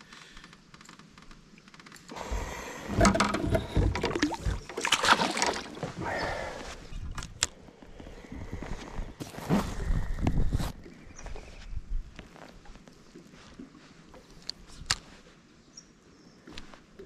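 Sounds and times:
water splashing and sloshing: 0.0 - 9.9, 12.2 - 15.4
knocks and handling noise: 0.5 - 6.0.

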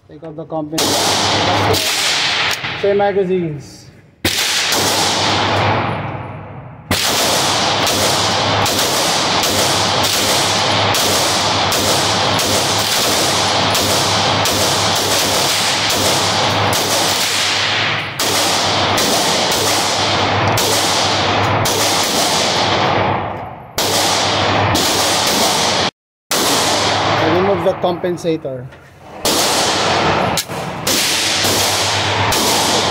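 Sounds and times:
pistol shots echoing indoors: 0.8 - 2.8, 4.2 - 27.6, 29.1 - 32.9.

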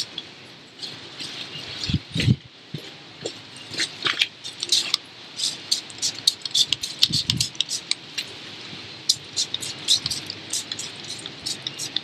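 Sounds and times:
spray bottle hissing: 4.5 - 7.9, 9.1 - 12.0.

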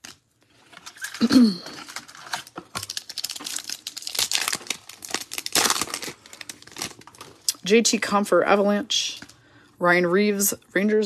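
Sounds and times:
foil pack crinkling and tearing: 0.0 - 7.5.

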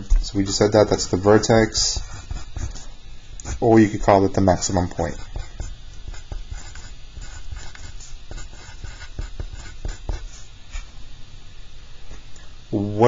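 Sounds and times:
pencil scratching on paper: 0.9 - 4.0, 4.6 - 10.9.

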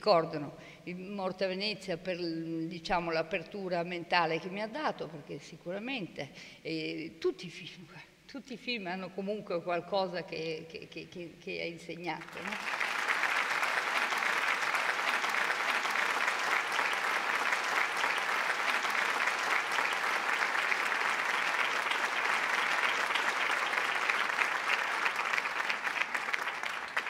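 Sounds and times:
audience applauding: 12.2 - 27.0.

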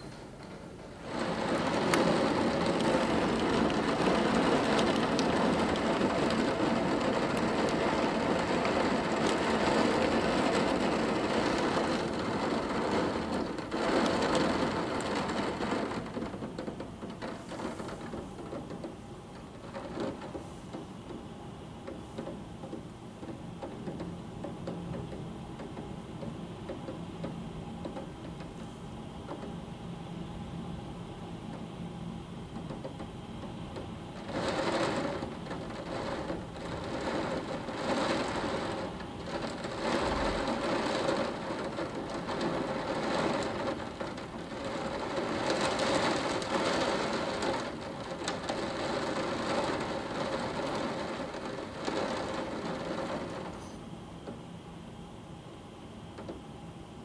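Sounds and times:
heavy rain pouring: 0.7 - 20.5, 34.2 - 53.8.

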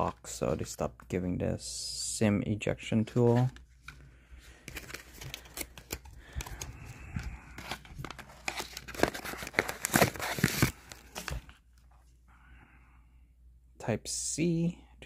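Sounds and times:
cardboard box and paper rustling: 7.5 - 11.6.

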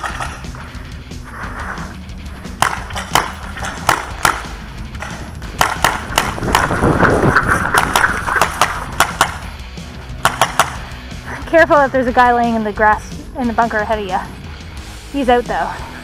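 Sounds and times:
paintball markers firing: 2.6 - 9.5, 10.2 - 10.9.

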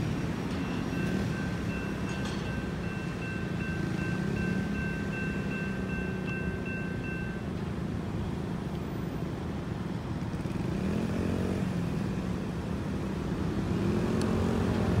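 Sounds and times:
railroad crossing bell ringing: 0.0 - 7.8
vehicle engines accelerating: 0.0 - 15.0.

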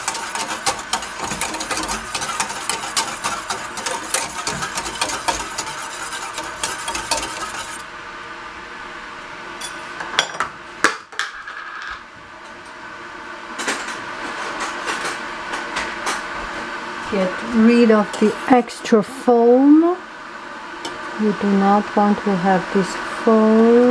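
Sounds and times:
whisk clinking against saucepan: 0.0 - 7.8.

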